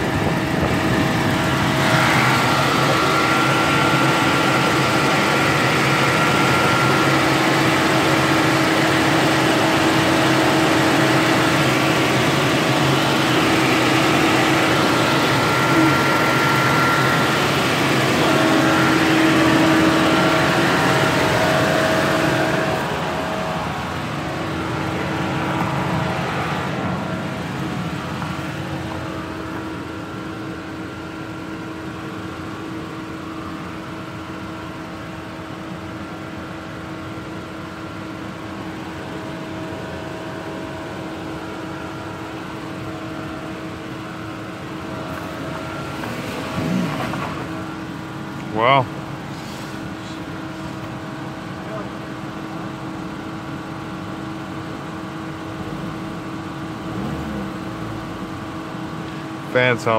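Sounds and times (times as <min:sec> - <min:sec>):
car engine idling: 0:00.0 - 0:59.9
steady held tones: 0:13.0 - 0:30.0.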